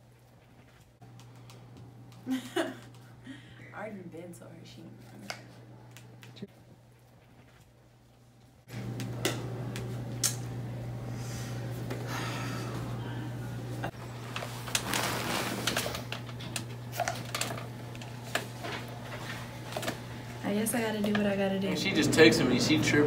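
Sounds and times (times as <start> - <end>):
low room hum: 0.0 - 23.0
clothing rustling: 14.2 - 16.1.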